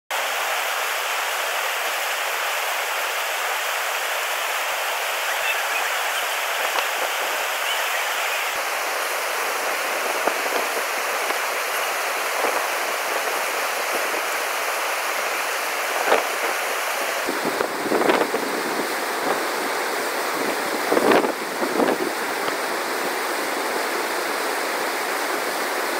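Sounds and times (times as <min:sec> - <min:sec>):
rushing whitewater: 0:00.1 - 0:25.9.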